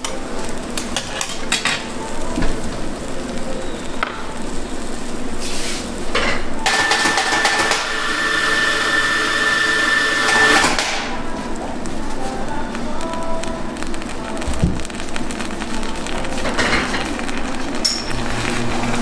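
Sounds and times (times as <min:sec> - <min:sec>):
omelette sizzling on griddle: 0:00.0 - 0:19.0.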